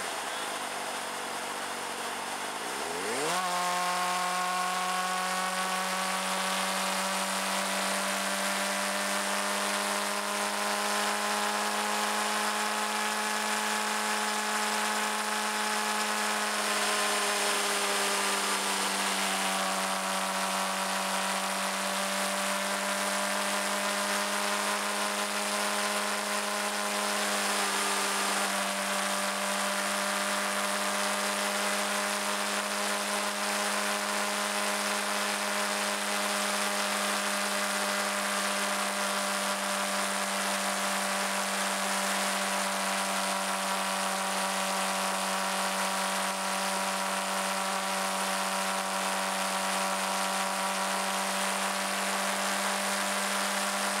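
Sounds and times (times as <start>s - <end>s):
road noise: 0.0s - 7.8s, 9.3s - 22.6s, 23.4s - 37.0s
motorcycle engine buzzing drone: 0.0s - 54.0s.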